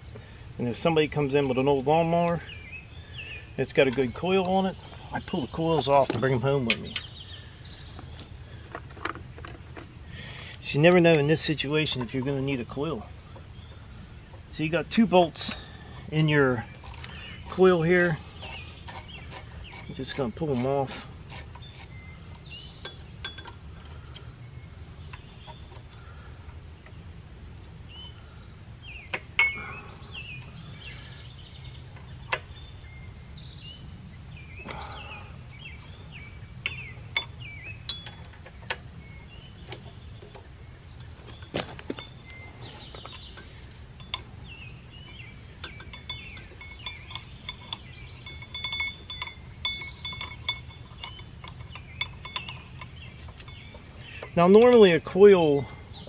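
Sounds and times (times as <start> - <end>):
wrench and bolts clinking: 15.4 - 24.3, 29.3 - 29.8, 36.6 - 38.8, 39.4 - 55.7.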